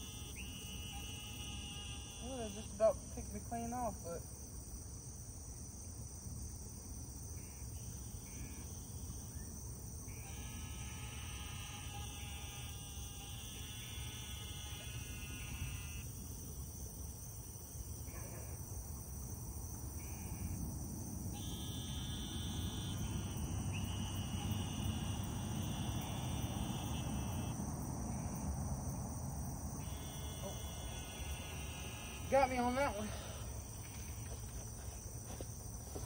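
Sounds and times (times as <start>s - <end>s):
low buzzing trill: 0.0s - 3.6s, 10.0s - 16.6s, 21.3s - 36.0s
insects chirring: 0.0s - 36.0s.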